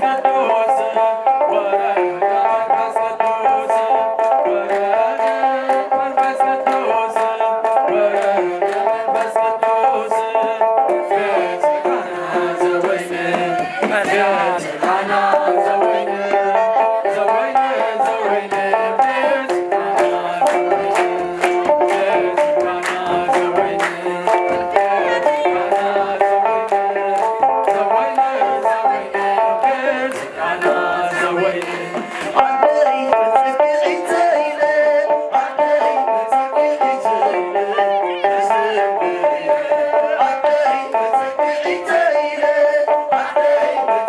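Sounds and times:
hand claps: 0.0s - 34.3s
drum beats: 0.0s - 44.0s
plucked melody: 0.0s - 44.0s.

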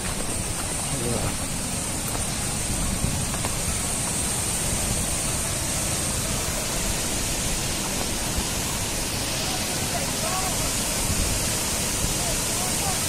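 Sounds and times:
river water rushing over rocks: 0.0s - 13.0s.

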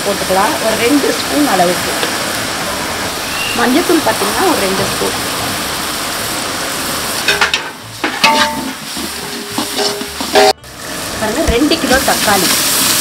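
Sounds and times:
onions sizzling in oil: 0.0s - 13.0s
ladle scraping metal pot: 7.2s - 10.6s.

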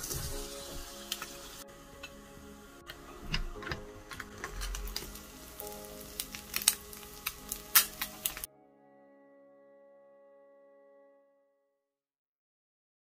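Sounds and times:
egg sizzling: 0.0s - 8.5s
soft background music: 0.0s - 11.7s.

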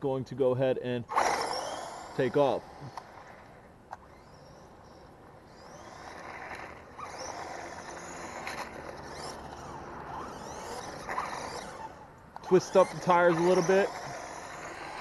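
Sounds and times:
toy truck electric motor whining: 1.1s - 15.0s
tyres rushing over ground: 1.1s - 15.0s.

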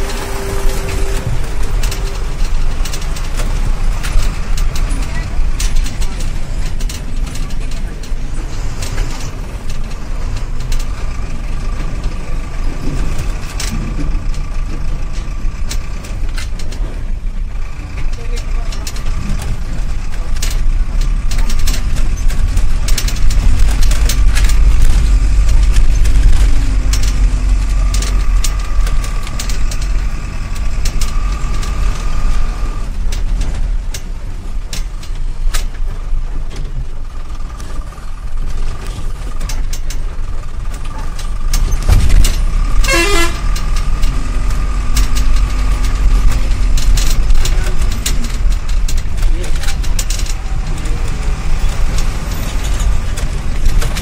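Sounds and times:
pulsing horn: 0.0s - 3.0s, 42.8s - 43.6s
whine: 0.0s - 4.2s
bus body rattling and knocking: 0.0s - 54.0s
bus engine rumble: 0.0s - 54.0s.

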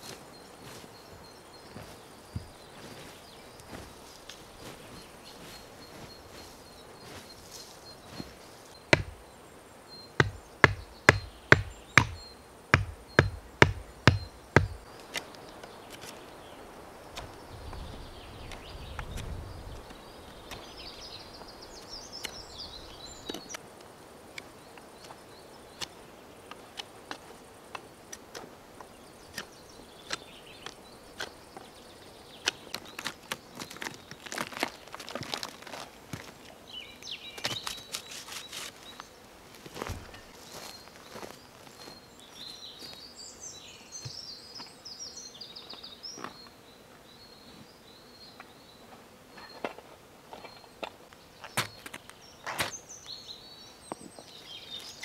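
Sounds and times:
blade chopping into wood: 9.0s - 9.2s, 10.2s - 15.3s.

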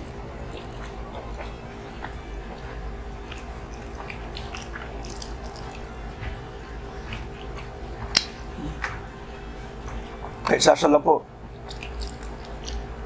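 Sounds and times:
people chewing food: 0.0s - 10.6s, 11.4s - 13.0s
steady low hum: 0.0s - 13.0s
lip smacks: 0.5s - 5.9s, 7.1s - 9.0s, 11.6s - 13.0s.

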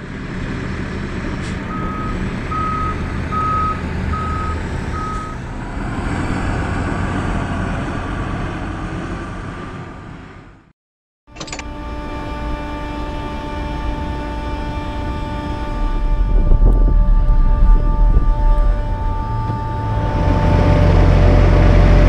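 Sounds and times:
diesel engine running: 0.0s - 10.7s, 11.4s - 22.0s
reverse alarm beeping: 1.7s - 5.4s.

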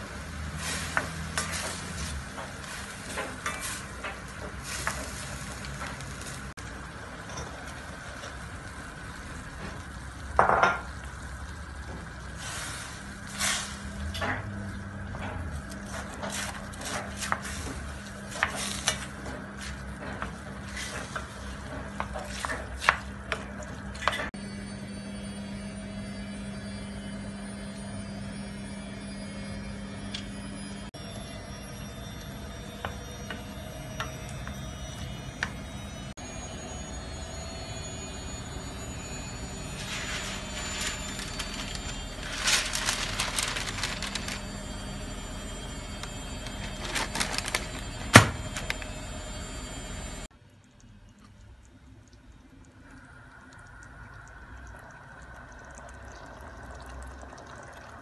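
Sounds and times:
baking paper crinkling: 39.8s - 44.7s, 46.4s - 48.8s.

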